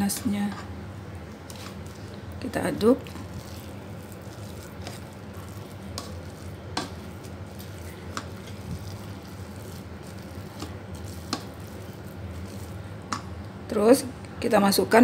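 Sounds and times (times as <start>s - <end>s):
paddle scraping rice in pot: 3.0s - 12.9s.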